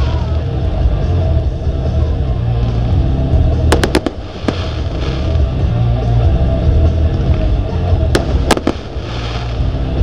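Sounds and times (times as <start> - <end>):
music playing: 0.0 - 10.0
firework cracks: 3.7 - 5.6, 8.2 - 9.7.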